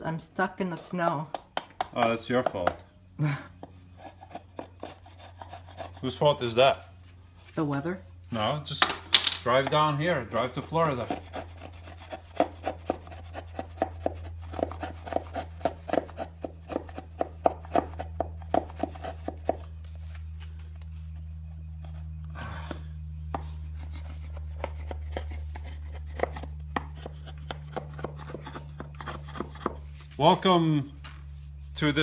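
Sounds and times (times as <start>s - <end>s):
steady low hum: 0.0s - 32.0s
chisel scraping wood: 3.6s - 6.3s, 10.7s - 19.7s, 21.8s - 30.2s.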